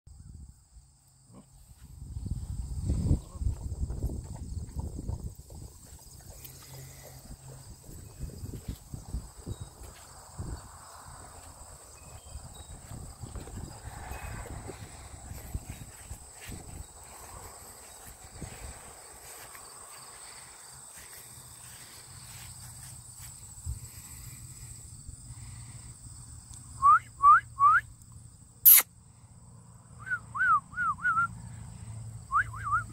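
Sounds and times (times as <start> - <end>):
sharp click: 28.7 - 28.9.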